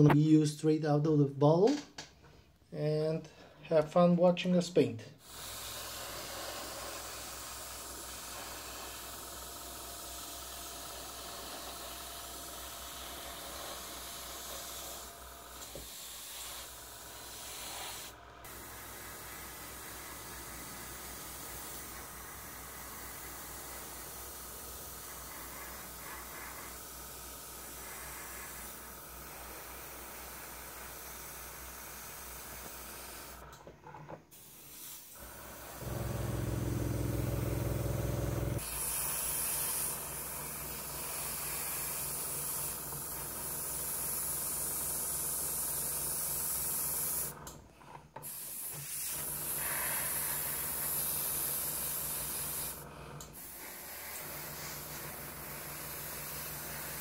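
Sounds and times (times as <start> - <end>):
airbrush hissing: 5.2 - 33.4, 34.4 - 47.3, 48.2 - 57.0
low hum: 35.8 - 38.6.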